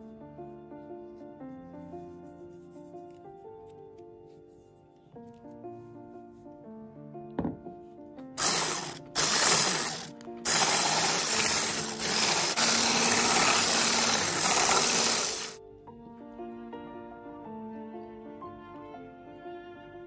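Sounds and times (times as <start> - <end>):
soft background music: 0.0 - 8.4, 15.6 - 20.0
stick blender running: 8.4 - 15.6.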